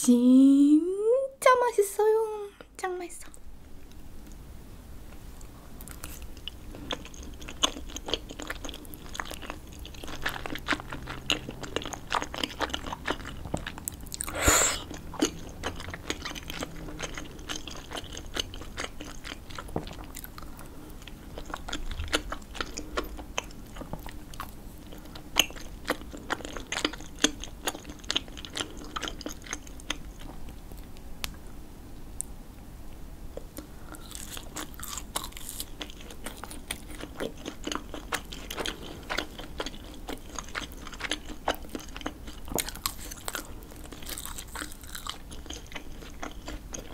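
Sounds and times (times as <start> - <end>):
chewing rice cakes: 5.4 - 31.4, 33.3 - 46.9.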